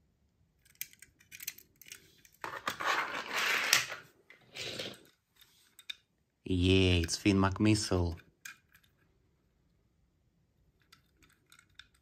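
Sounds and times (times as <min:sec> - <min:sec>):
toy cars clinking and rattling: 0:00.6 - 0:06.1, 0:06.8 - 0:09.1, 0:10.7 - 0:12.0.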